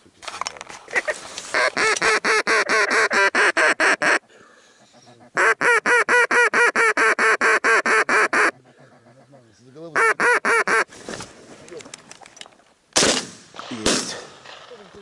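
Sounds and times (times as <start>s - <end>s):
duck call quacking: 0.9s - 4.2s, 4.8s - 10.9s.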